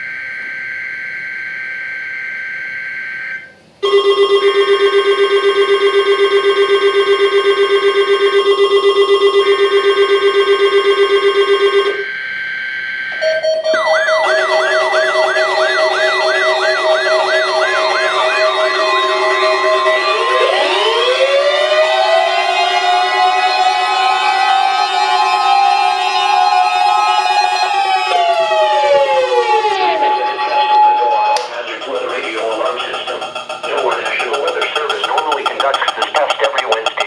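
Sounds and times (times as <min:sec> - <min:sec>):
siren-like warble: 0:00.0 - 0:36.1
pulsing alarm tone: 0:00.0 - 0:37.0
screeching data tones: 0:08.7 - 0:37.0.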